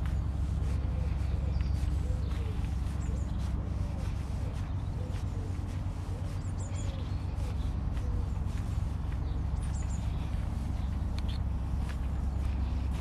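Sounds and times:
footsteps on footpath: 0.0s - 13.0s
low rumble: 0.0s - 13.0s
bird chirping: 0.1s - 12.8s.

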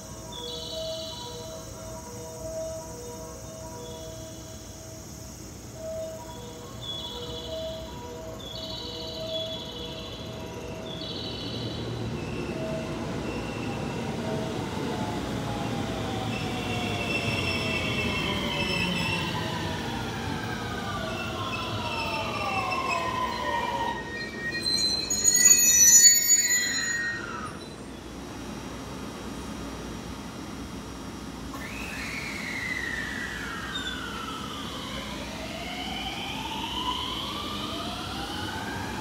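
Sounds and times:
wheels rumbling on rail: 0.0s - 39.0s
high-pitched brake squeal: 16.2s - 19.8s, 20.7s - 27.9s, 31.6s - 35.3s
train inverter whine falling in pitch: 29.6s - 39.0s.

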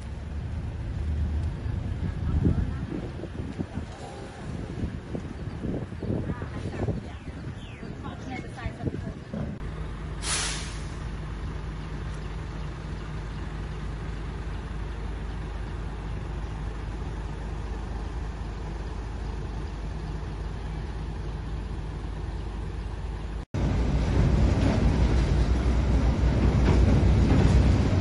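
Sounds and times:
diesel trucks rumbling: 0.0s - 28.0s
air brakes hissing: 10.2s - 11.1s.

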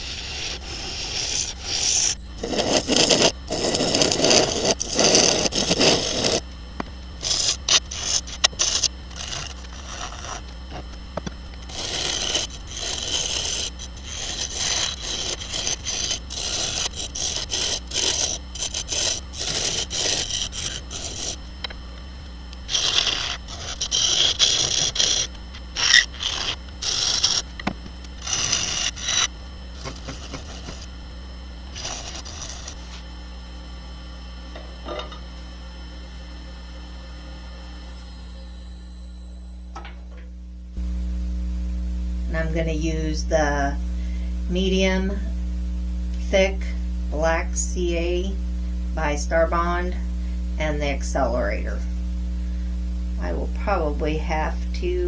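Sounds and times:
gouge scraping wood: 0.0s - 6.4s, 7.2s - 10.8s, 11.6s - 21.4s, 22.7s - 27.4s, 28.2s - 30.9s, 31.8s - 33.0s
lathe humming: 0.0s - 41.0s.

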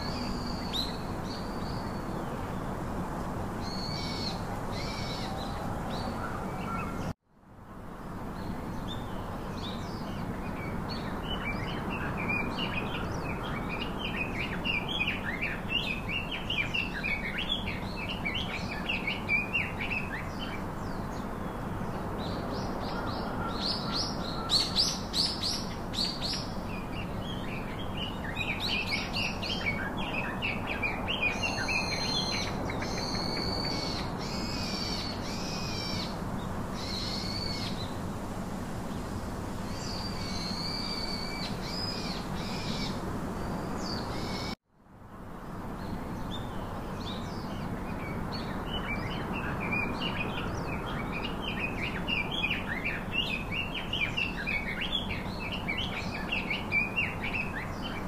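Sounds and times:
birds chirping and calling: 8.9s - 36.2s, 46.2s - 58.0s.

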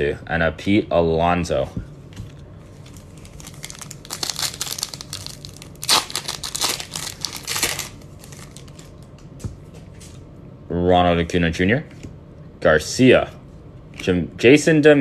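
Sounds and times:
foil pack crinkling and tearing: 2.8s - 9.0s.

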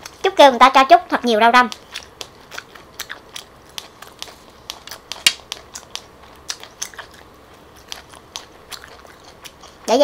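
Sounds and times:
person chewing crunchy leaves: 1.7s - 10.0s.

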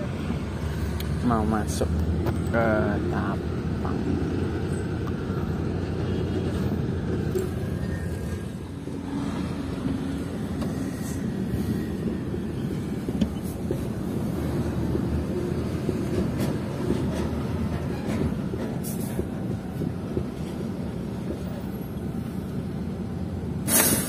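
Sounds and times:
truck diesel engine rumble: 0.0s - 24.0s.

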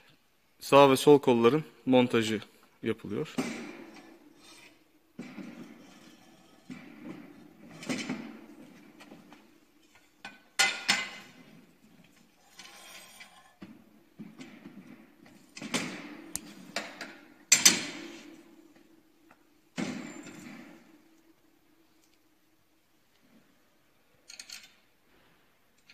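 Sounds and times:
metal knocks and clanks: 3.3s - 11.8s.

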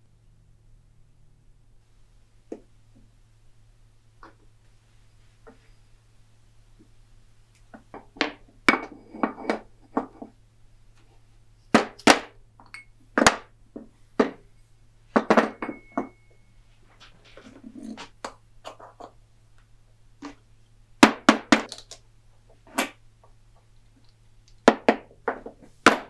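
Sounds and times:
metal part ringing: 12.6s - 13.0s, 15.4s - 16.6s.

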